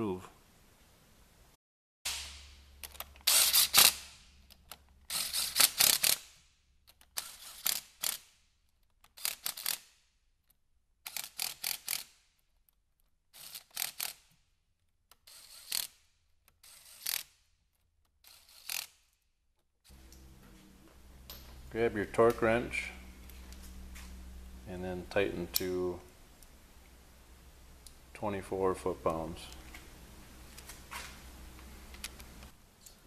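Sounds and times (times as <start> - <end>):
cordless power ratchet running: 3.2 - 4.0, 5.1 - 6.2.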